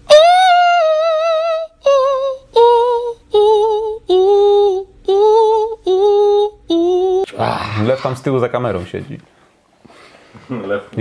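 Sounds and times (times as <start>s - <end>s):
high singing voice with vibrato: 0.0s - 7.3s.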